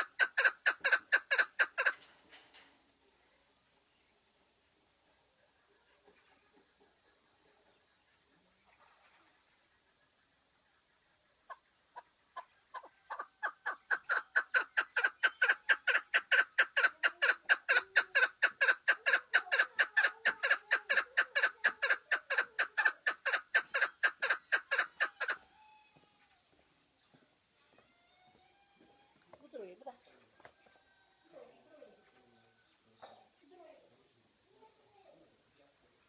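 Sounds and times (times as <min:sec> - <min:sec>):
partridge chuk calls: 0:00.0 - 0:01.9, 0:09.8 - 0:25.4.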